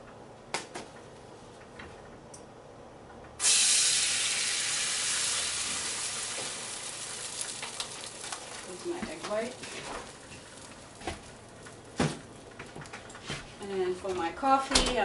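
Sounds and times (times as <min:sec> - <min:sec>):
egg sizzling in frying pan: 0:03.4 - 0:13.0.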